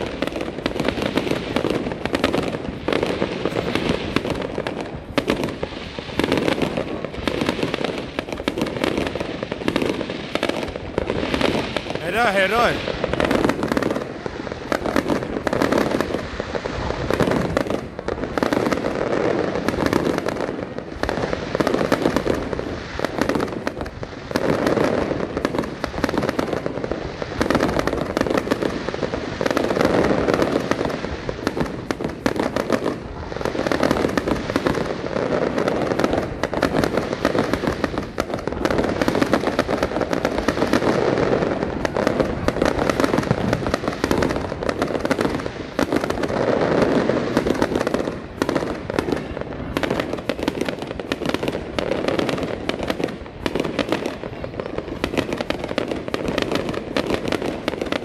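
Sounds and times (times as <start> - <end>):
fireworks bursting and crackling: 0.0 - 58.0.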